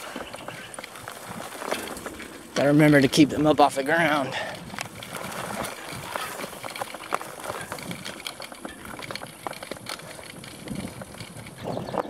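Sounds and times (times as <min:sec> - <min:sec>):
bike clicks and rattles: 0:00.0 - 0:12.0
bike tyres on dirt: 0:00.0 - 0:12.0.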